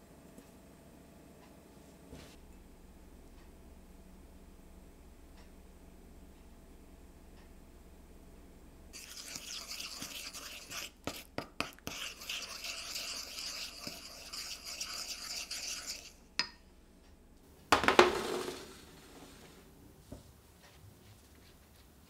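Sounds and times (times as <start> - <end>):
wooden utensil scraping a pan: 9.0 - 16.2.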